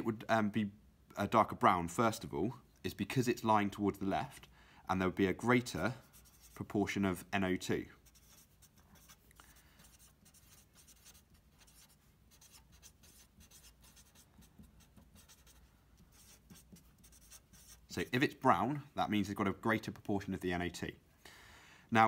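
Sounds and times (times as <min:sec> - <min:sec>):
marker pen writing on paper: 0:06.0 - 0:06.6, 0:08.0 - 0:17.9.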